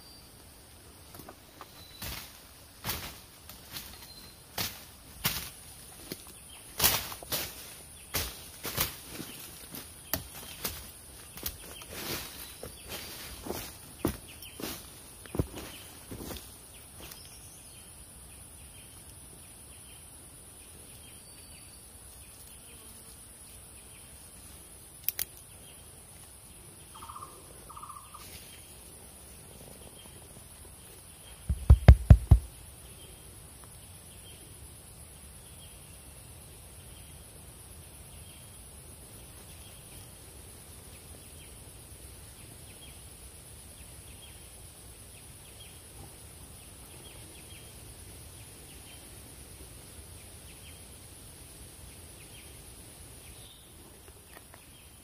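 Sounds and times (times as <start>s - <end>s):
faint chirp: 1.6s - 2.3s
low thumps: 31.4s - 32.5s.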